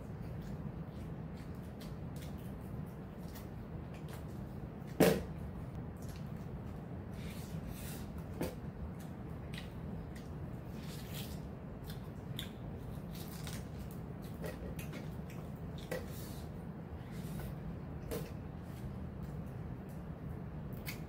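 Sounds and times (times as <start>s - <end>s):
clicks and smacks of eating: 0.0s - 6.8s, 8.2s - 16.1s, 19.2s - 21.0s
steady low hum: 0.0s - 21.0s.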